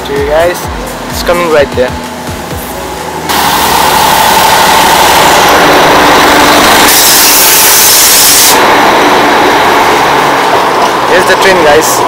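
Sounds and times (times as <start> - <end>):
diesel locomotive engine: 0.0 - 12.0
loud hiss: 3.3 - 9.4.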